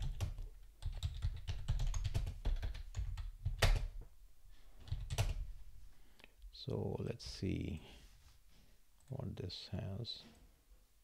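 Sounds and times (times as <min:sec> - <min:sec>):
typing on keyboard: 0:00.0 - 0:04.0, 0:04.8 - 0:05.4.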